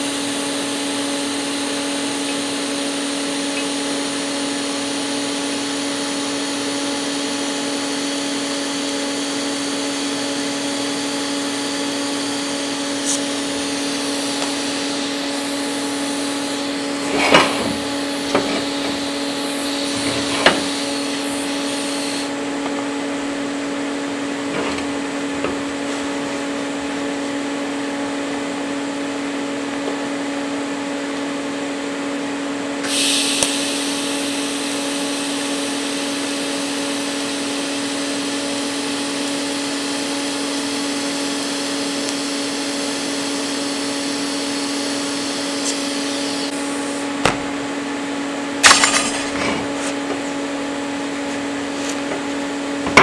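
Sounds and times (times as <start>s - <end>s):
welding arc hissing: 0.0s - 22.4s, 32.8s - 38.2s, 38.8s - 47.1s
welder humming: 0.0s - 53.0s.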